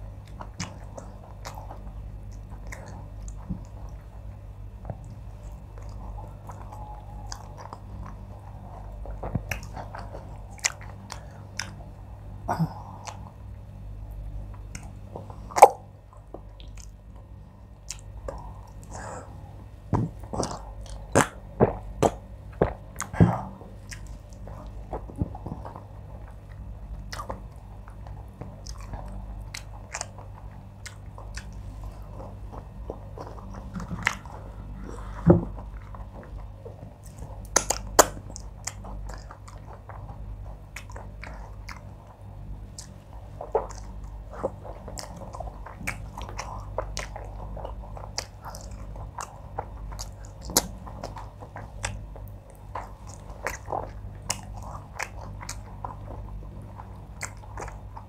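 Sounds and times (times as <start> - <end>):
low hum: 0.0 - 58.0
person chewing and swallowing: 0.1 - 58.0
wet lip and tongue clicks: 16.6 - 17.0, 26.3 - 31.6, 37.0 - 42.0, 42.7 - 58.0.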